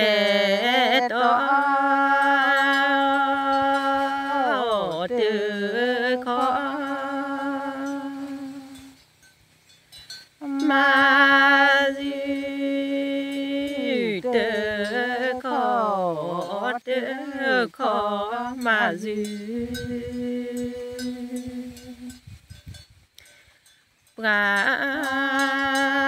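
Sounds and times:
person chanting: 0.0 - 9.0, 10.4 - 22.2, 24.2 - 26.0.

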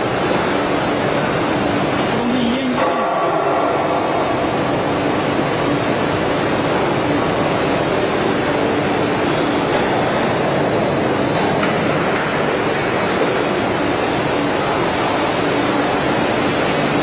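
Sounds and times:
splicing machine running: 0.0 - 17.0.

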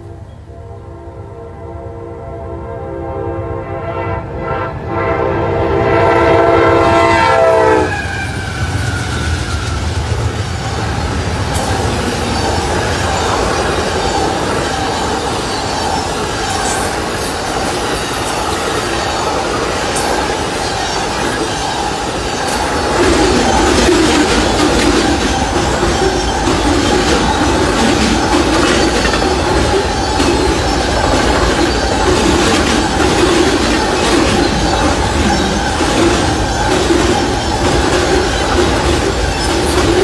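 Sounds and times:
locomotive air horn chord: 0.0 - 8.1
passenger cars clattering over rails: 8.0 - 40.0.

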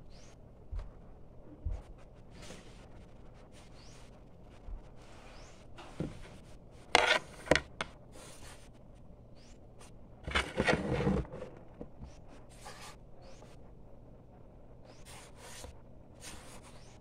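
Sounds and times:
scraping and rubbing: 6.9 - 8.6, 10.2 - 13.5.

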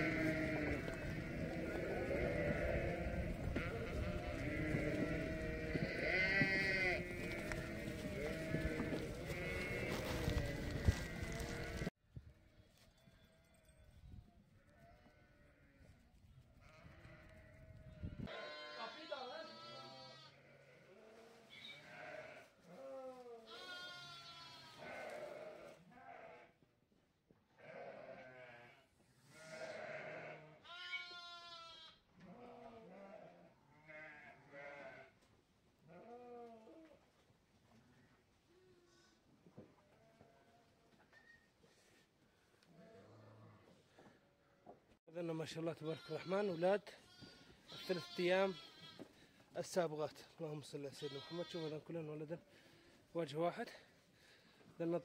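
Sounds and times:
sheep bleating: 0.0 - 11.9, 14.6 - 16.0, 16.6 - 26.6, 27.6 - 35.2, 35.9 - 36.8, 45.5 - 49.2, 50.8 - 52.6.

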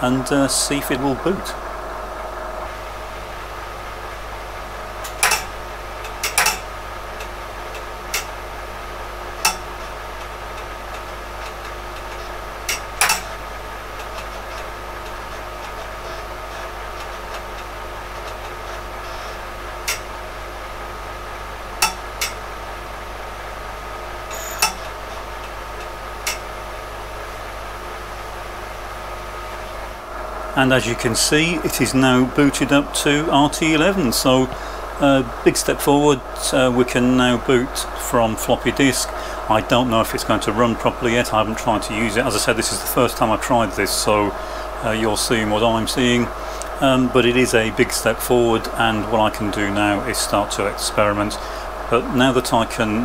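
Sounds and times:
steady machine hum: 0.0 - 53.0
floppy disk drive clunking: 5.0 - 22.8.

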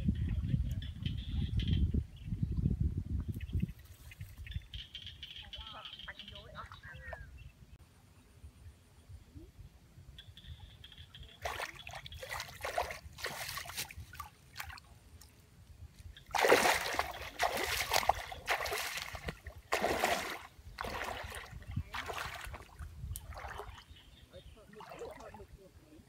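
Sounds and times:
wading splashes in muddy water: 11.3 - 15.3, 16.1 - 25.6.

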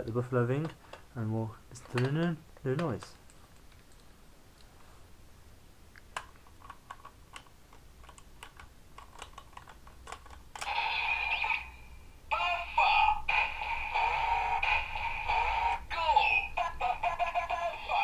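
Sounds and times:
toy belt electronic voice: 10.6 - 18.0.

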